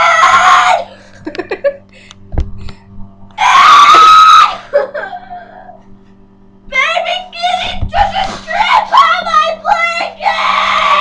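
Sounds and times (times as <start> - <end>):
girl screaming: 0.0 - 0.9, 3.4 - 4.6, 6.8 - 11.0.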